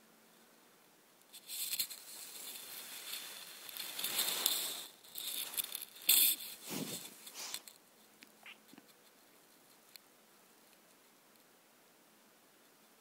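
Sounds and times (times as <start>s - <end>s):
rustling against a blanket: 1.3s - 7.8s.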